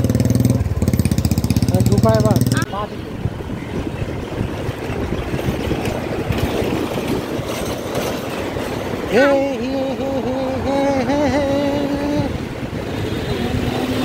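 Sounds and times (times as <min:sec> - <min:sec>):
engine and road noise: 0:00.0 - 0:14.0
wind buffeting microphone: 0:00.5 - 0:14.0
man singing: 0:09.1 - 0:12.5.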